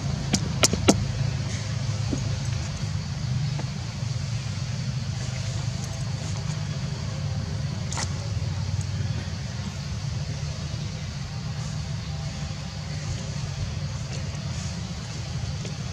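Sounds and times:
engine rumbling: 0:00.0 - 0:15.9.

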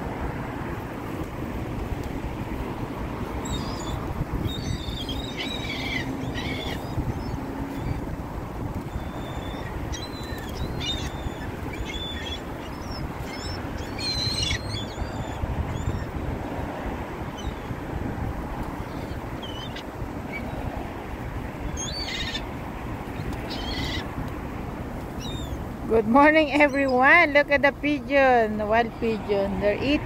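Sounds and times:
wind rumble on microphone: 0:00.0 - 0:30.0
gulls squawking: 0:03.4 - 0:08.1, 0:08.8 - 0:16.2, 0:18.8 - 0:20.7, 0:21.7 - 0:22.5, 0:23.2 - 0:24.1, 0:26.3 - 0:27.5.

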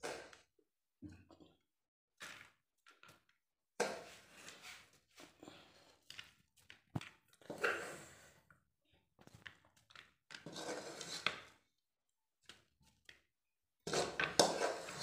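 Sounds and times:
spoon scraping crumbly mixture: 0:03.8 - 0:08.0, 0:09.3 - 0:11.6, 0:12.4 - 0:15.0.

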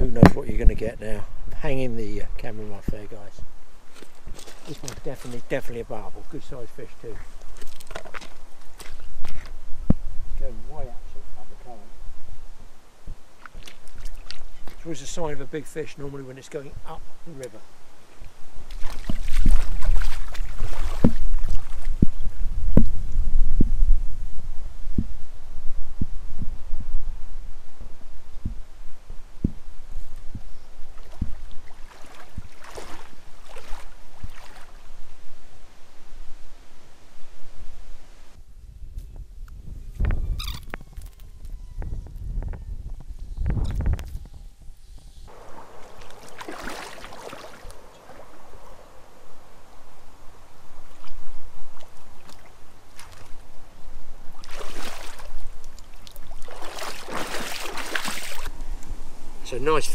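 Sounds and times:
wind buffeting microphone: 0:00.0 - 0:15.1, 0:18.3 - 0:36.4, 0:37.4 - 0:59.9
river water splashing: 0:03.8 - 0:05.6, 0:07.3 - 0:09.6, 0:13.3 - 0:15.3, 0:18.0 - 0:22.0, 0:30.8 - 0:35.0, 0:45.3 - 0:58.6.

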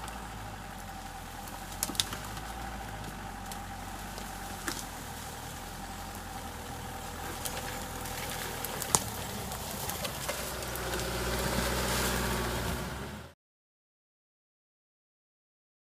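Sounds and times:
off-road vehicle engine running: 0:00.0 - 0:13.4.

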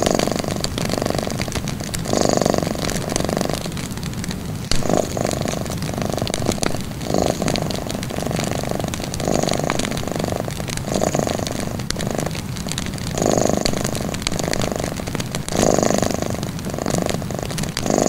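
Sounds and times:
cat purring: 0:00.0 - 0:18.0
wood fire crackling and popping: 0:00.0 - 0:18.0.

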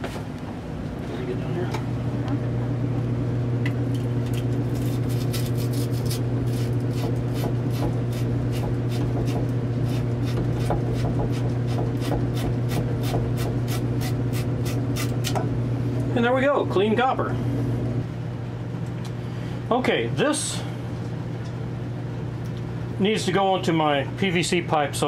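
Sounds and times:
steady low hum: 0:00.0 - 0:25.0
wire brush scrubbing copper tube: 0:04.8 - 0:15.1.

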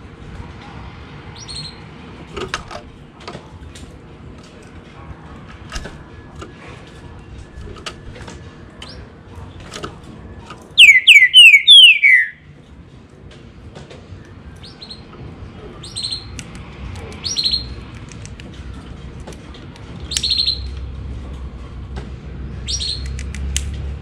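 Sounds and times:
bird whistling song: 0:01.4 - 0:01.8, 0:10.8 - 0:12.5, 0:14.6 - 0:15.1, 0:15.8 - 0:16.4, 0:17.2 - 0:17.8, 0:20.1 - 0:20.8, 0:22.6 - 0:23.2.

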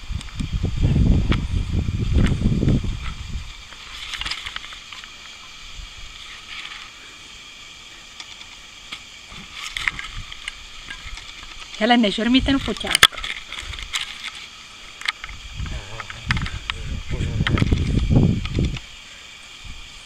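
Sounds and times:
wind rumble on microphone: 0:00.0 - 0:04.3, 0:15.2 - 0:19.0, 0:19.6 - 0:20.0.

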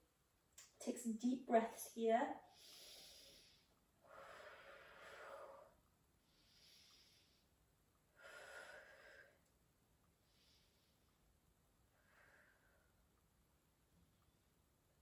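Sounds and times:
woman breathing slowly: 0:02.4 - 0:13.2.

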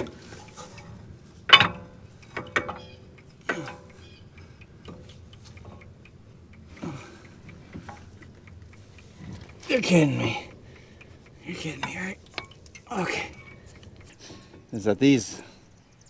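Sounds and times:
metal knocks and clanks: 0:01.5 - 0:02.9.

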